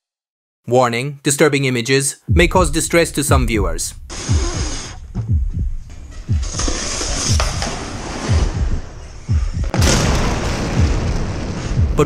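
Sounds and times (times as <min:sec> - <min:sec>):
dramatic music with deep booms: 0:02.3 - 0:12.0
loud rushing hiss: 0:03.8 - 0:05.2.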